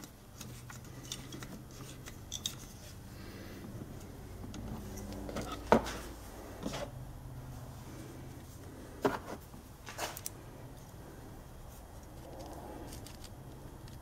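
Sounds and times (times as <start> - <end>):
small metal clicks and scrapes: 0.0 - 3.0, 12.0 - 14.0.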